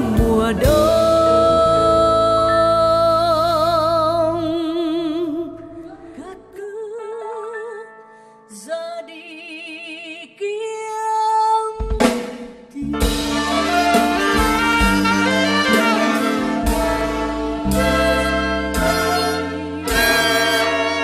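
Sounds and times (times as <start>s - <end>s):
jazz big band: 0.0s - 3.0s, 12.0s - 21.0s
woman singing a ballad: 0.0s - 12.2s, 12.8s - 17.0s.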